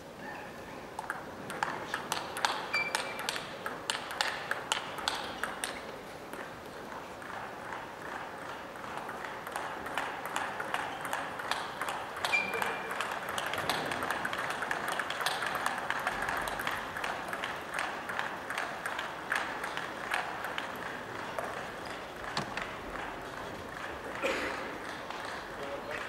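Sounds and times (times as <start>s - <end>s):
table tennis ball clicking: 1.0s - 6.4s, 9.0s - 20.8s.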